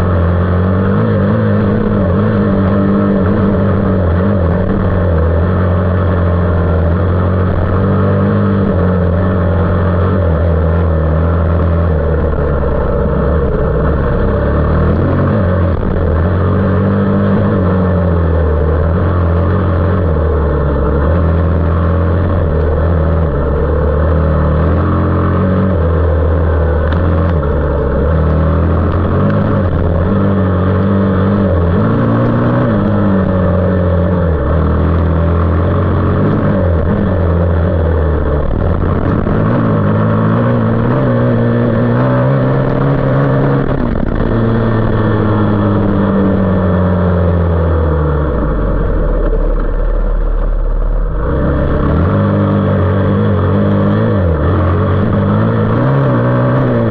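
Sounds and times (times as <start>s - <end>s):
off-road motorcycle engine revving: 0.0s - 56.9s.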